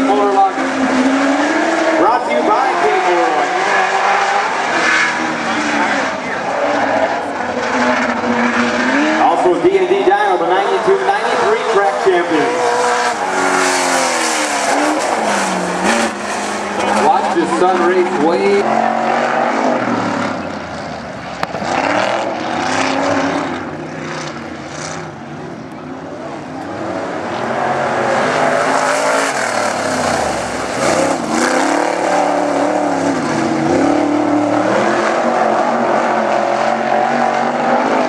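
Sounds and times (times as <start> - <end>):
race car engine running hard: 0.0 - 38.0.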